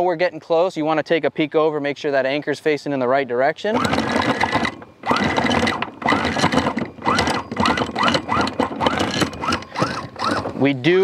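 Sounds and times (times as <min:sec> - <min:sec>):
anchor windlass mechanical strokes: 0:03.7 - 0:11.0
motor whine: 0:03.8 - 0:10.6.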